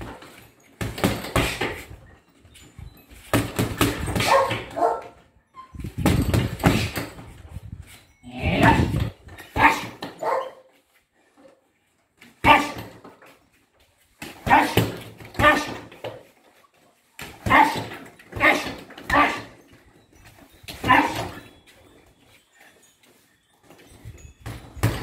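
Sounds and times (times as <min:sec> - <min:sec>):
punches thudding on punch bag: 0:00.8 - 0:01.9, 0:03.3 - 0:04.8, 0:05.9 - 0:07.4, 0:14.2 - 0:16.0, 0:17.2 - 0:19.5, 0:24.4 - 0:25.0
dog barking: 0:04.2 - 0:05.2, 0:09.6 - 0:10.7, 0:12.4 - 0:12.8, 0:14.5 - 0:14.8, 0:15.4 - 0:15.8, 0:17.4 - 0:19.5, 0:20.8 - 0:21.4.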